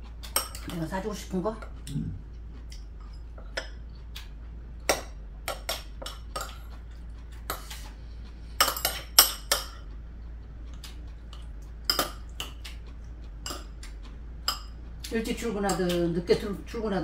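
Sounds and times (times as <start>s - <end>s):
utensils clinking on ceramic bowls: 0.3s - 0.8s, 8.6s - 9.8s.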